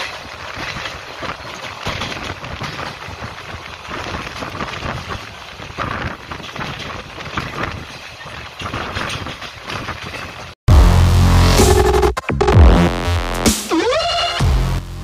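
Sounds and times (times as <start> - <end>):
train wheels clattering on rails: 0.0 - 10.6.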